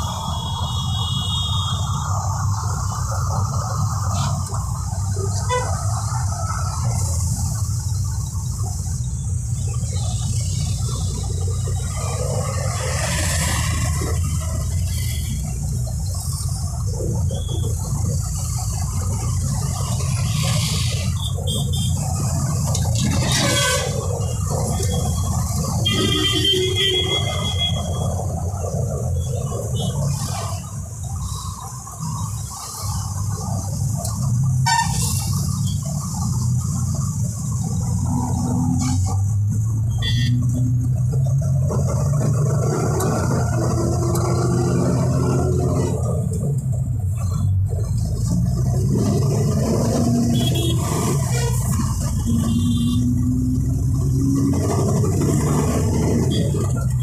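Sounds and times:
engine and road rumble: 0:00.0 - 0:57.0
vehicle horn: 0:05.4 - 0:05.7, 0:23.4 - 0:24.0, 0:25.9 - 0:27.9, 0:50.3 - 0:51.7, 0:52.4 - 0:53.1.

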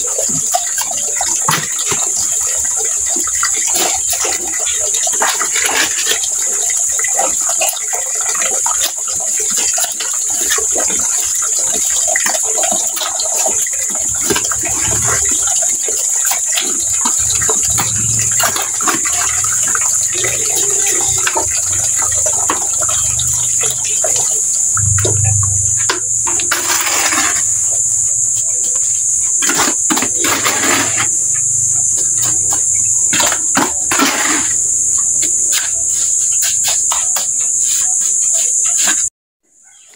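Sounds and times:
trowel scraping metal bucket: 0:24.8 - 0:27.5, 0:29.4 - 0:31.1.

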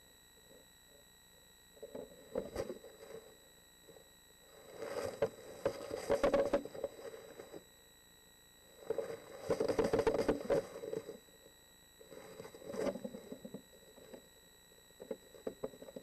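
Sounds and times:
faint steady high tone: 0:00.0 - 0:16.0
owl scuffling and scratching in box: 0:01.8 - 0:03.4, 0:04.4 - 0:07.7, 0:08.8 - 0:11.3, 0:12.0 - 0:14.3.

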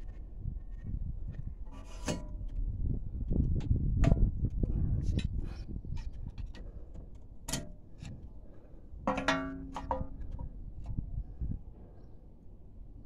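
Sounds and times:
metal clicks and scrapes: 0:01.6 - 0:02.6.

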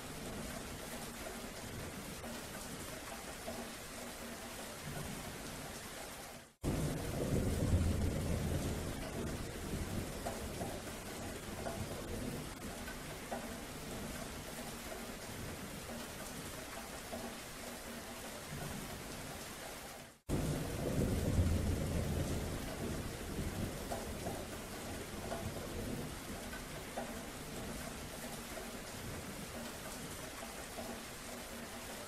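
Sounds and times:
rain falling: 0:00.0 - 0:32.0
thunder rumbling: 0:06.6 - 0:12.8, 0:20.3 - 0:26.6.

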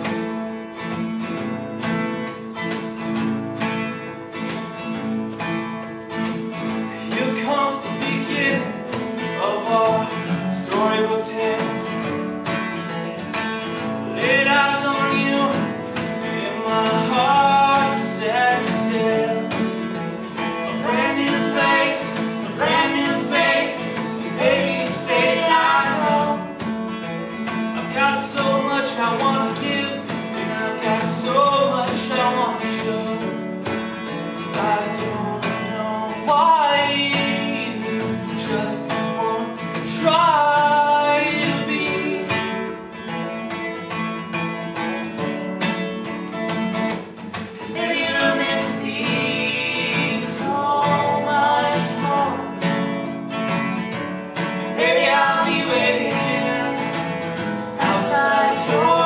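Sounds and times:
acoustic guitars strummed and picked: 0:00.0 - 0:59.0
person singing: 0:14.1 - 0:19.8, 0:20.6 - 0:26.6, 0:47.6 - 0:52.8, 0:54.8 - 0:57.1, 0:57.8 - 0:59.0.

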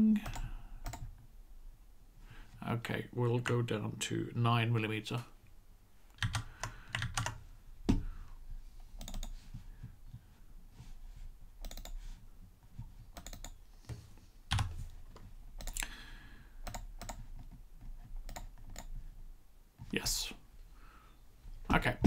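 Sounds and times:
keyboard keys clicking: 0:06.2 - 0:07.4, 0:09.0 - 0:09.4, 0:11.6 - 0:12.0, 0:13.2 - 0:13.6, 0:16.6 - 0:17.2.

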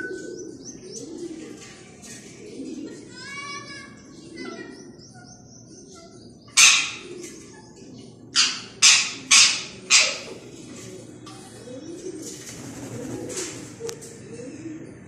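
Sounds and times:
parakeets screeching: 0:08.4 - 0:10.4.

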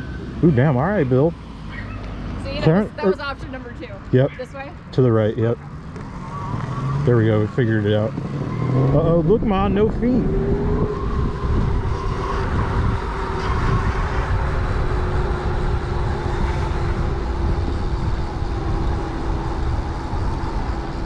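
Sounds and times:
wind rumble on microphone: 0:07.0 - 0:21.0.

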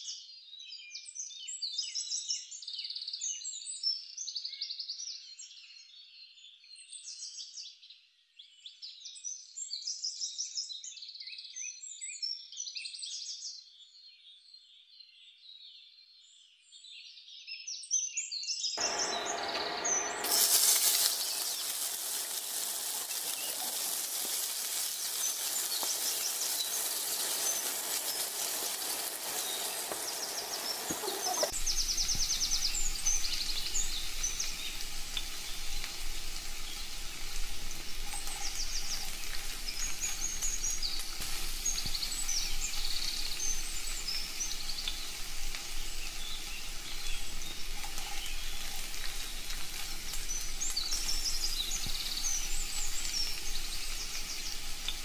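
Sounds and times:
birds chirping: 0:18.8 - 0:34.8
food frying in hot oil: 0:18.8 - 0:55.0.

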